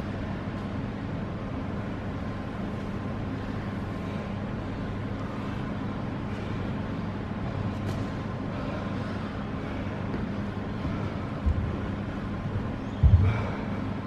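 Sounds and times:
steady low hum with hiss: 0.0s - 14.0s.

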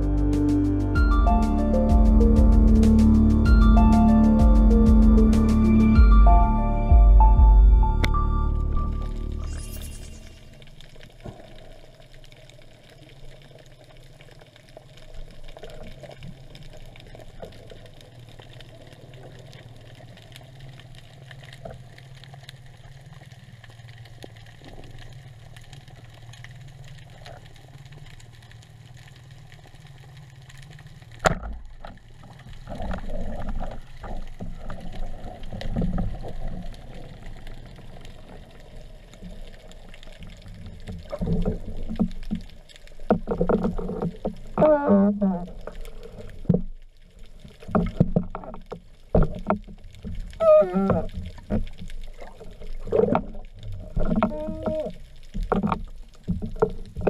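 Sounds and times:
low underwater rumble: 0.0s - 57.0s
water movement and knocking: 40.9s - 45.1s, 47.7s - 57.0s.

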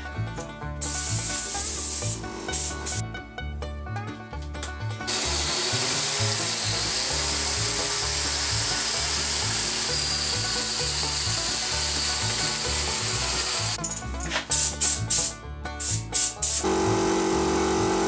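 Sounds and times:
background music with bass line: 0.0s - 18.0s
rotary sander on spinning wood: 0.8s - 3.0s, 5.1s - 13.8s.

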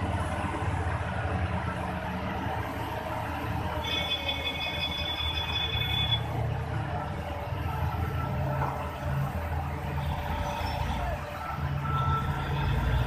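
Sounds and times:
diesel engine rumbling: 0.0s - 13.0s
high beeping alarm: 3.8s - 6.3s.

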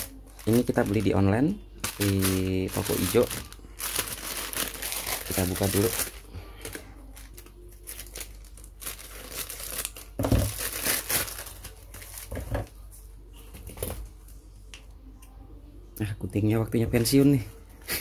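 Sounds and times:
package paper crinkling and tearing: 0.0s - 12.7s.

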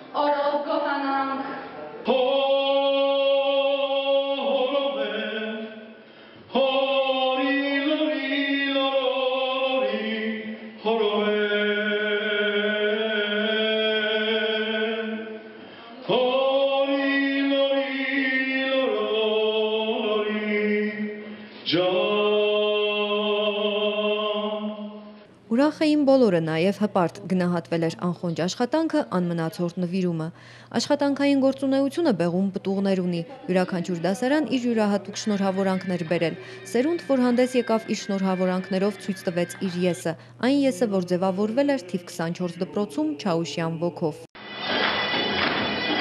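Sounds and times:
man singing into a microphone: 2.0s - 5.9s, 6.5s - 15.4s, 16.0s - 24.9s.

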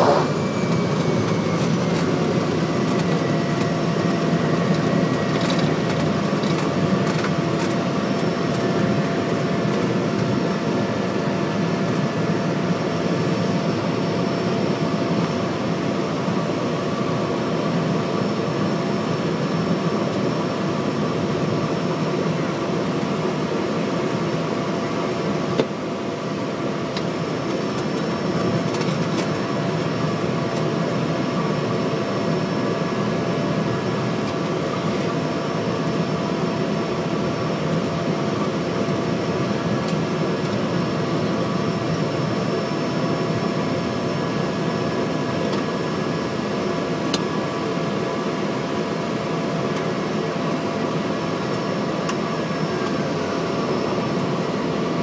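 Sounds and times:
turboprop engine whine: 0.0s - 55.0s.

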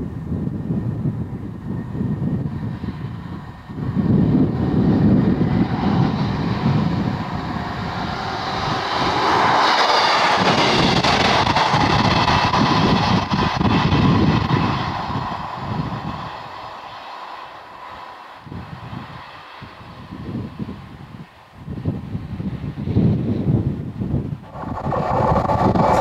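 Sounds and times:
diesel engine rumble: 0.0s - 26.0s
train wheels rushing on rail: 0.2s - 26.0s
steady whine: 2.9s - 19.8s, 24.2s - 26.0s.

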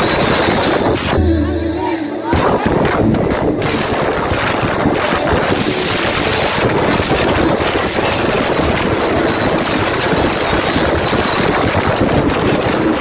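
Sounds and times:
crowd cheering: 0.0s - 3.1s
live band music: 0.0s - 7.7s.

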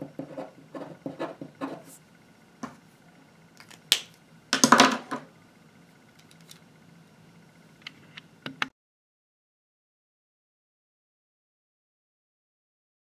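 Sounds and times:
pen scratching on paper: 0.0s - 2.0s.

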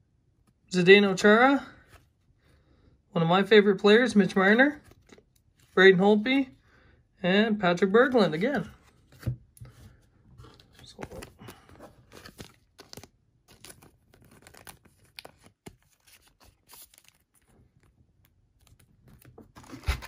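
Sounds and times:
plastic card sleeve crinkling: 4.3s - 5.8s, 10.4s - 20.0s.

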